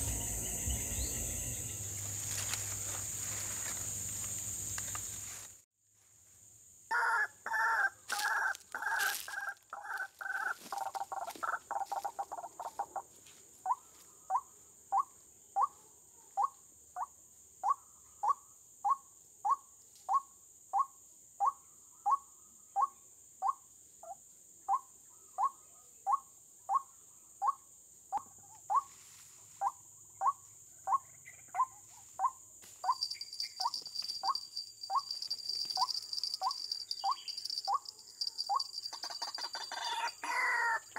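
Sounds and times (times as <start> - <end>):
high insect-like whine: 0.0 - 14.1, 31.2 - 40.9.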